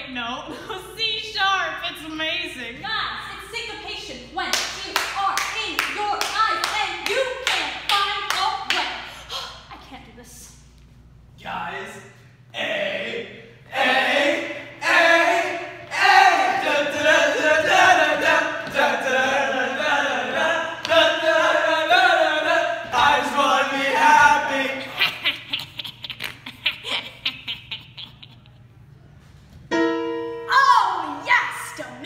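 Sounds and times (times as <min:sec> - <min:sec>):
boys singing a cappella: 0:12.5 - 0:25.0
girl laughing: 0:24.8 - 0:28.8.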